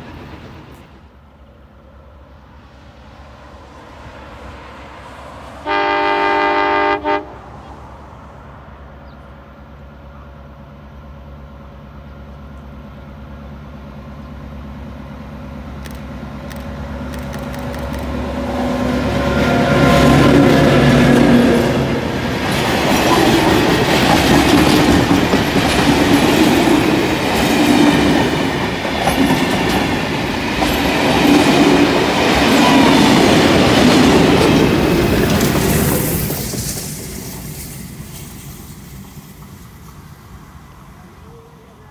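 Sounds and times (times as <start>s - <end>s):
train rumbling: 0.0s - 41.9s
locomotive horn blast: 5.6s - 7.6s, 18.5s - 22.1s
wheels clattering over rails: 20.4s - 40.0s.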